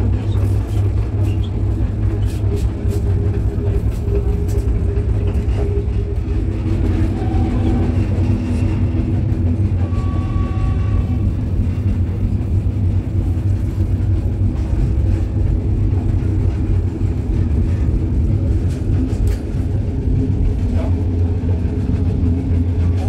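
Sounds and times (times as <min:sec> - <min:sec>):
diesel train rumbling: 0:00.0 - 0:23.0
droning tone: 0:03.2 - 0:13.4.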